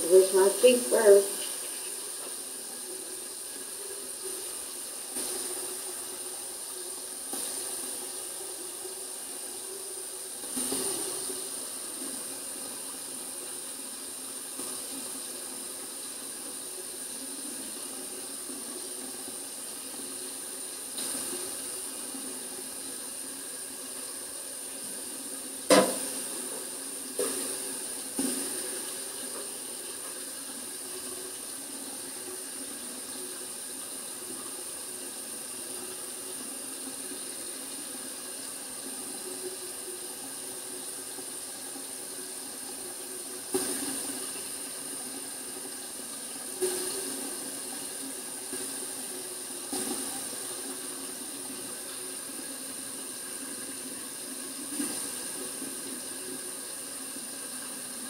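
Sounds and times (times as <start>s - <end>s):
sharp knocks: 25.7s - 26.0s.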